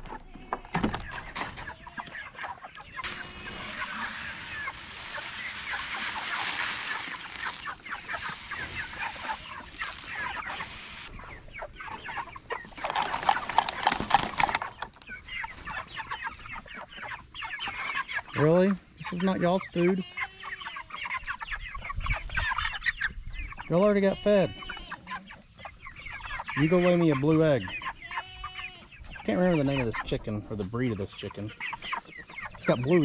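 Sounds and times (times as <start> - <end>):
chickens clucking: 0.0 - 33.0
grain pouring into a pipe: 3.0 - 11.1.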